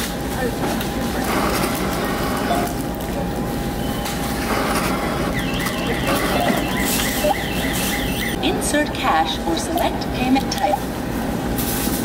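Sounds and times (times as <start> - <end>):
store background din: 0.0 - 12.0
high chirps: 5.3 - 8.4.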